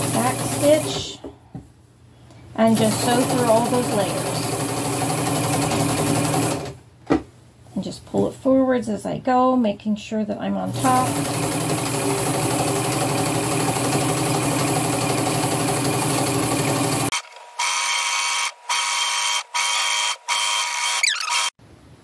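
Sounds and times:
electric sewing machine stitching: 0.0s - 1.1s, 2.6s - 6.8s, 10.7s - 21.6s.

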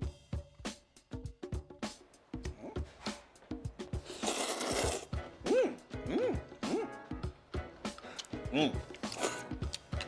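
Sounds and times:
background music: 0.0s - 10.0s
noodles being slurped: 4.0s - 5.1s, 7.9s - 10.0s.

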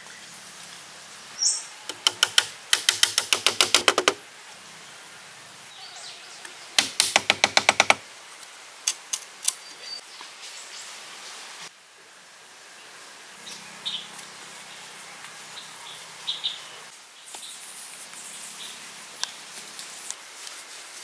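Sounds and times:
light wooden knocks: 1.9s - 4.2s, 6.8s - 8.0s.

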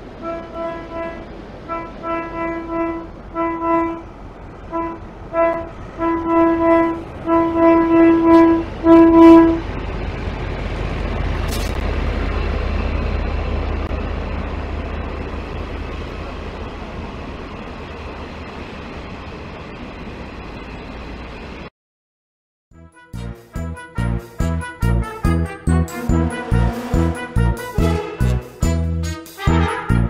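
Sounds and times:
train rumbling past: 0.0s - 21.7s, 23.5s - 30.0s
locomotive horn toots: 0.2s - 4.1s, 4.7s - 9.7s, 22.7s - 30.0s.

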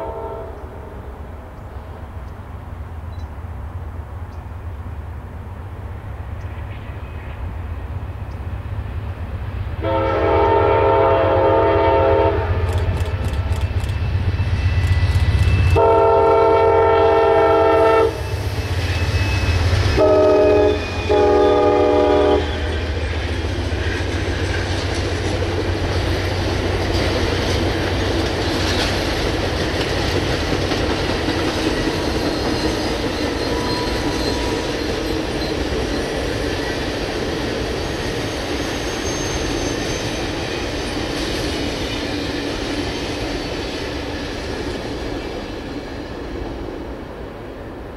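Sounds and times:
train air horn blasts: 0.0s - 1.1s, 9.8s - 12.9s, 14.7s - 18.5s, 19.3s - 22.8s
train wheels rolling on rails: 0.0s - 47.9s.

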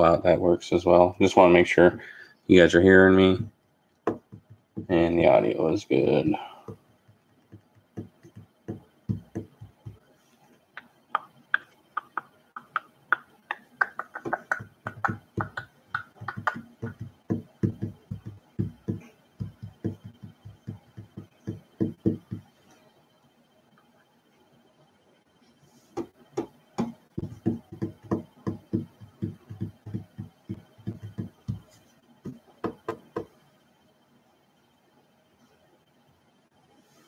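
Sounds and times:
quick uneven taps and thumps: 3.4s - 5.0s, 6.6s - 10.0s, 10.8s - 22.6s, 26.0s - 33.3s.

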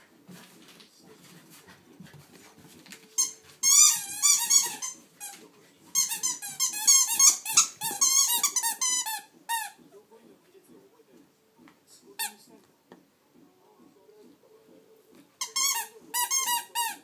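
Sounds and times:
squeaky dog toy squeaking: 3.2s - 5.3s, 5.9s - 9.8s, 15.4s - 17.0s.

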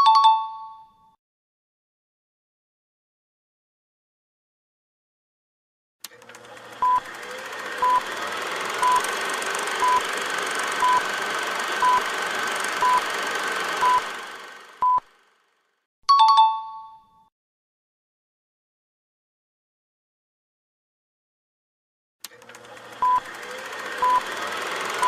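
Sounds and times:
short electronic beeps: 8.8s - 9.0s, 10.8s - 11.0s, 12.8s - 13.0s, 14.8s - 15.1s.

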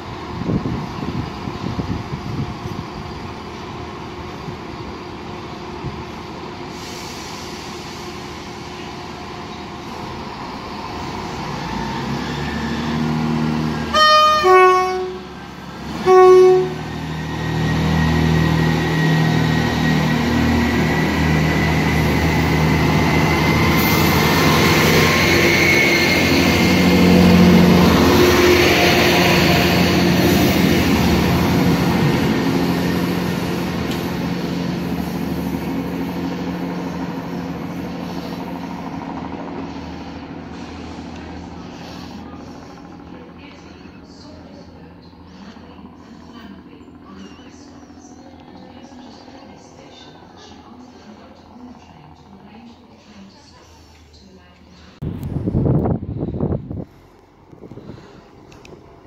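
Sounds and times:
diesel engines revving: 5.8s - 52.4s
train horn: 13.8s - 17.0s.

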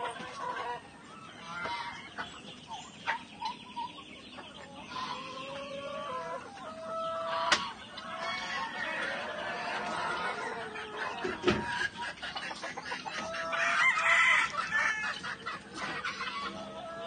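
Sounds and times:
chickens clucking: 0.0s - 17.0s
rooster crowing: 13.5s - 15.2s.

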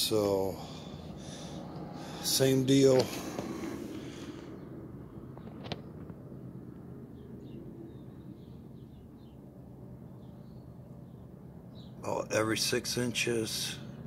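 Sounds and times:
steady low rumble: 0.0s - 14.0s
faint bird chirps: 7.1s - 12.3s.

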